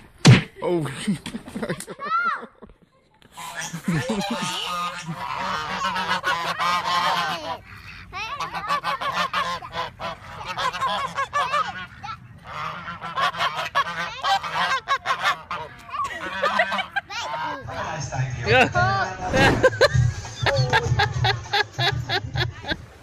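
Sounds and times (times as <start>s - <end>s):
geese honking: 3.3s - 18.3s.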